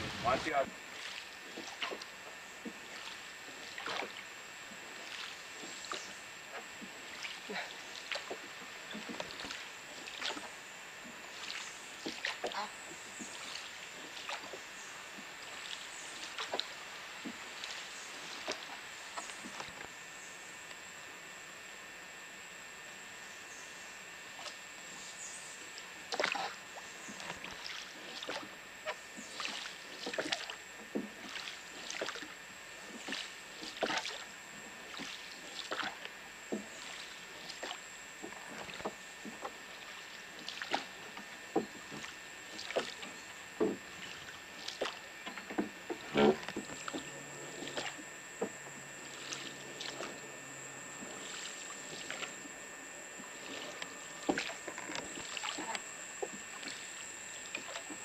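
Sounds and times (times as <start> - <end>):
oars splashing in water: 0.0 - 19.8, 26.0 - 58.0
faint high whine: 0.0 - 58.0.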